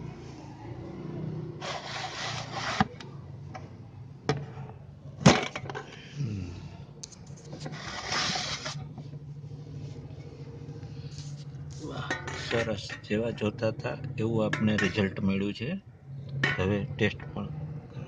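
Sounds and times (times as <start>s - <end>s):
metal cookware clicks and knocks: 14.4s - 15.2s.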